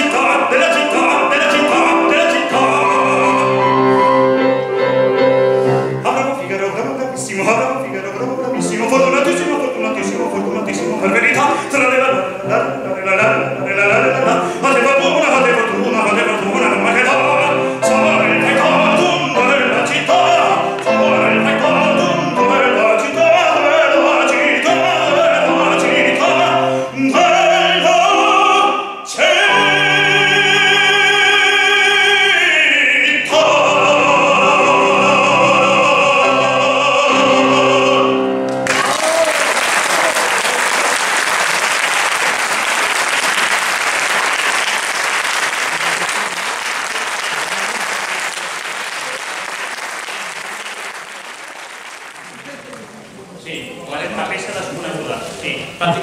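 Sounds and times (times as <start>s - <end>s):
baritone singing: 0.0s - 39.2s
piano chords: 0.0s - 39.3s
audience applause: 38.5s - 53.2s.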